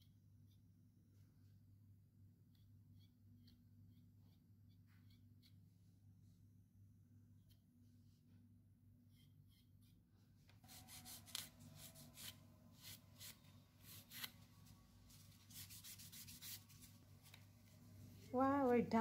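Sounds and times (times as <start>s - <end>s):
rubbing on fingernail: 10.6s - 17.4s.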